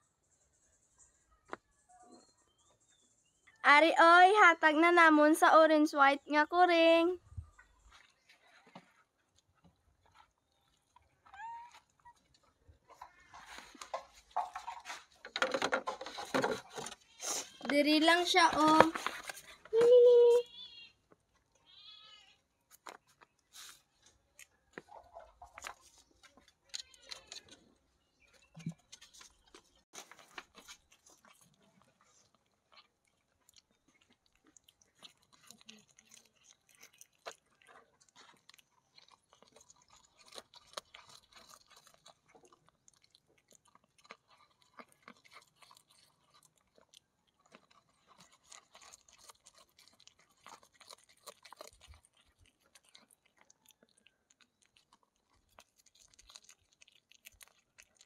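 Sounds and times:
cat chewing: 0:22.6 - 0:58.0.

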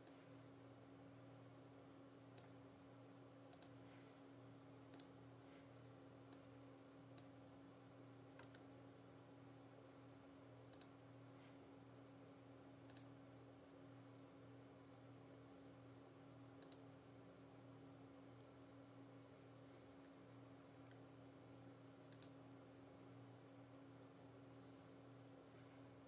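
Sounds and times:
small sharp clicks: 0:00.0 - 0:00.3, 0:02.3 - 0:02.6, 0:03.5 - 0:03.8, 0:04.8 - 0:05.2, 0:06.2 - 0:06.5, 0:07.1 - 0:07.4, 0:08.4 - 0:08.7, 0:10.7 - 0:11.0, 0:12.8 - 0:13.2, 0:16.6 - 0:16.9, 0:22.1 - 0:22.4
faint steady hum: 0:00.0 - 0:26.0.

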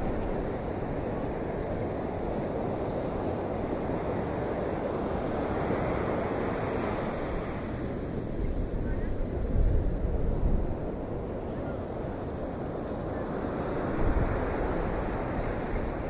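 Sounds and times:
wind: 0:00.0 - 0:16.0.

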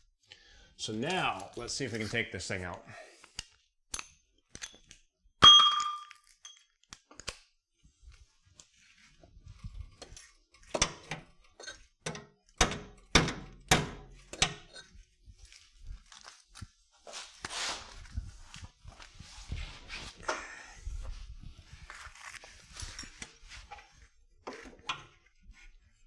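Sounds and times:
metal tools clinking and knocking: 0:04.5 - 0:06.8
loud ringing metallic clink: 0:05.4 - 0:06.1.

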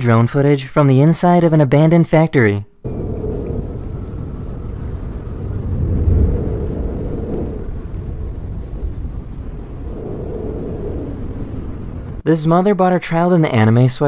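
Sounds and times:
drone propellers rumbling: 0:02.8 - 0:12.2.

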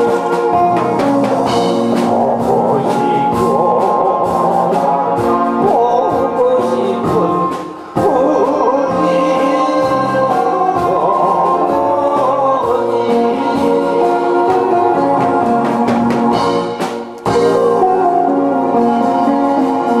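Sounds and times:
man singing into microphone: 0:00.0 - 0:15.8
instrumental accompaniment: 0:00.0 - 0:20.0.

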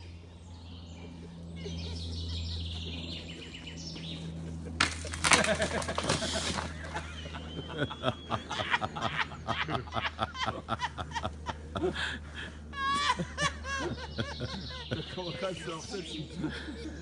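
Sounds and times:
person snickering and giggling: 0:04.2 - 0:15.4, 0:16.0 - 0:17.0.

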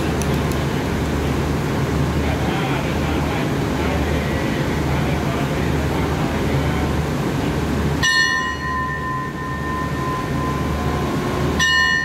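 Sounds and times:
diesel locomotive idling hum: 0:00.0 - 0:12.0
bell ringing: 0:08.0 - 0:12.0.

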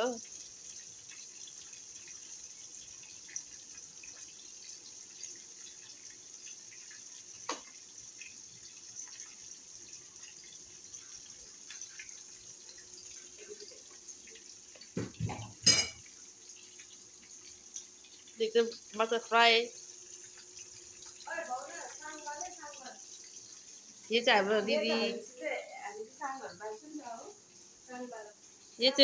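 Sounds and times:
oil sizzling and crackling: 0:00.0 - 0:29.0
knocks: 0:15.0 - 0:15.6.

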